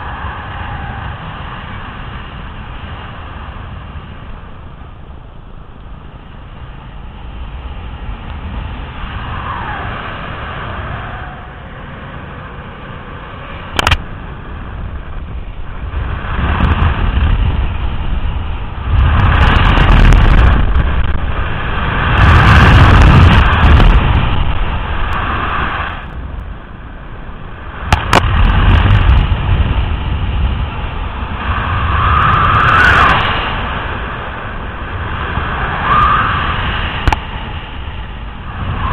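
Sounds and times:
wind buffeting microphone: 0:00.0 - 0:38.9
sharp clicks: 0:13.7 - 0:14.0.

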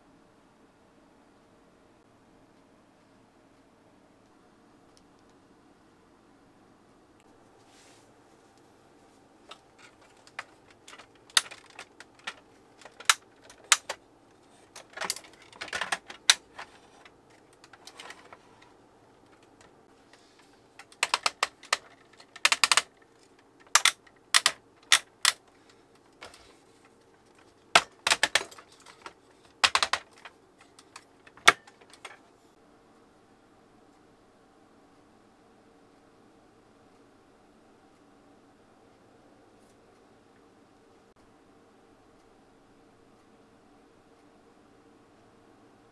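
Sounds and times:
plastic toy parts clicking: 0:09.5 - 0:18.7, 0:20.8 - 0:25.4, 0:26.1 - 0:26.5, 0:27.3 - 0:32.2.

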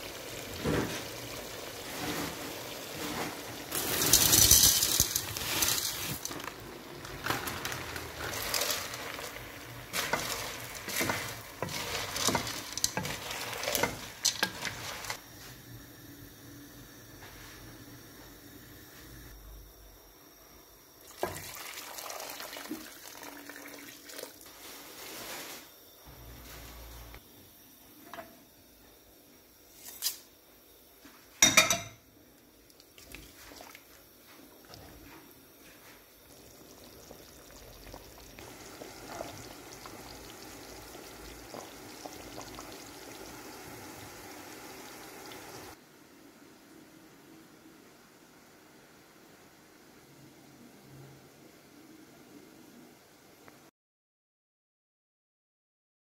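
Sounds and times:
water splashing into hot pan: 0:00.0 - 0:15.2, 0:21.0 - 0:24.4, 0:36.3 - 0:45.8.

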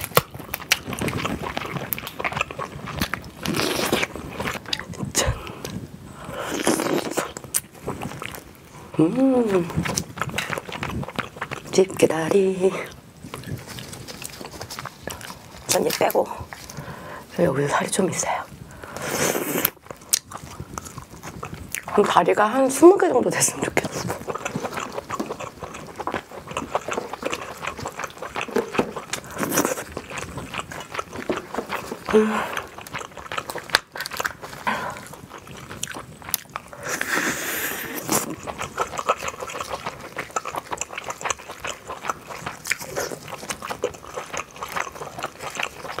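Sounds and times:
chewing with crunches: 0:00.0 - 0:46.0.

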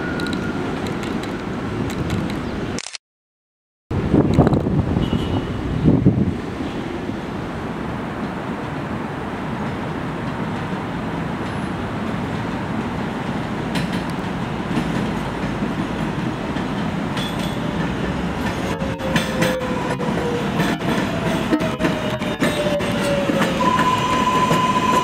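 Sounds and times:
train rumbling on elevated track: 0:00.0 - 0:02.7, 0:03.9 - 0:25.0
train wheels clicking: 0:13.7 - 0:25.0.

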